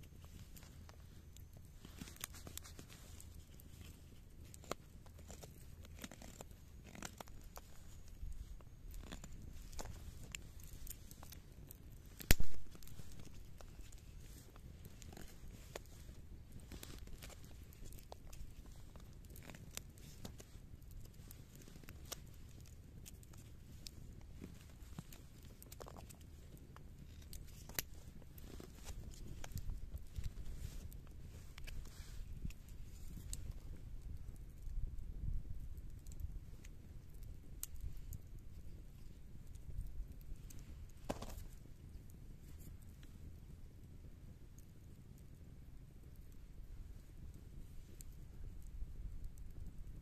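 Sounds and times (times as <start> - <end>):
knife shaving wooden stick: 0.1 - 34.1.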